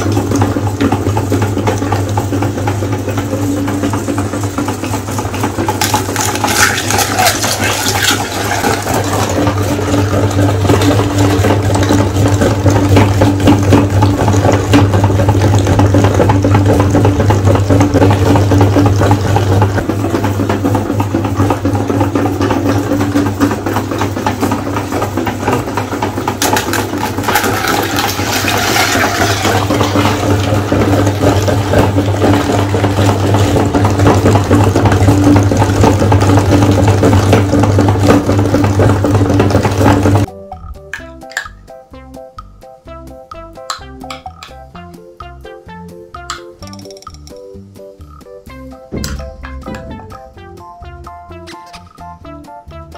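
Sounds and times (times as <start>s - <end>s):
meat grinder motor hum: 0.0s - 40.3s.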